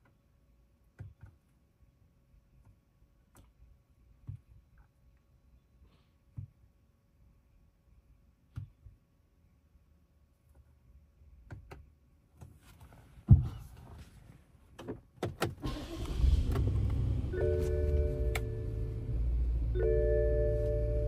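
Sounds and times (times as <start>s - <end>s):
car engine starting and running: 15.4s - 21.0s.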